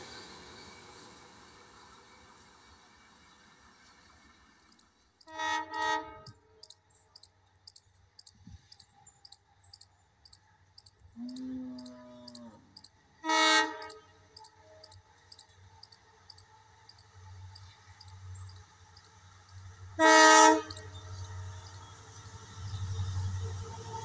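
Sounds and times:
train rumbling: 0.0 - 24.0
locomotive horn blasts: 5.2 - 6.4, 11.2 - 14.9, 19.9 - 21.7.

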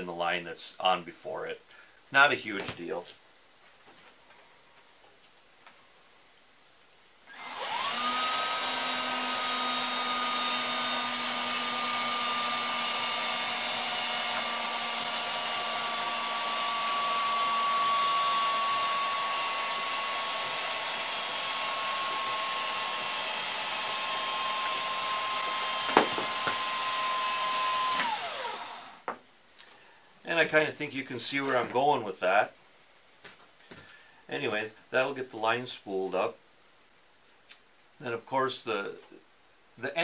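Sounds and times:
cordless drill whining: 7.3 - 29.1.

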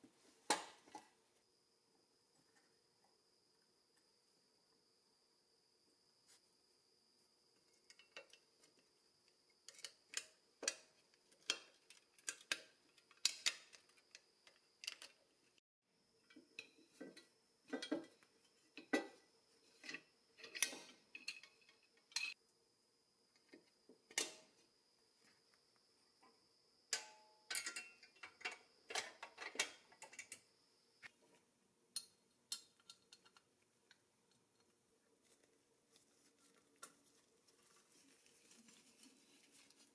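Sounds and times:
faint steady hum: 0.0 - 39.9
metal toy parts clicking: 11.4 - 15.2.

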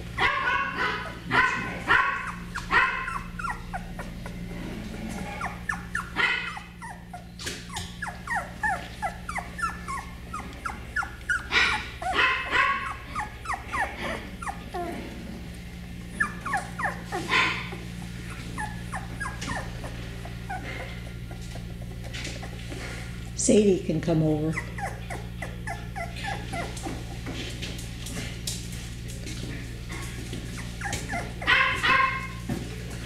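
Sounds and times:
low hum: 0.0 - 30.3
puppies whimpering and yipping: 0.8 - 23.1, 24.3 - 27.4, 30.3 - 32.5.

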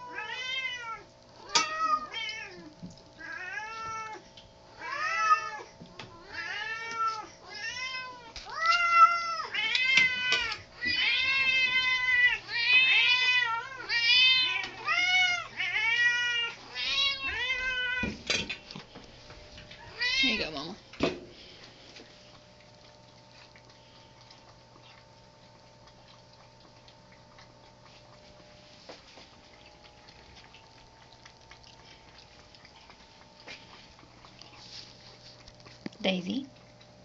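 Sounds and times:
cats meowing: 0.0 - 4.2, 4.8 - 18.4, 19.7 - 20.8.

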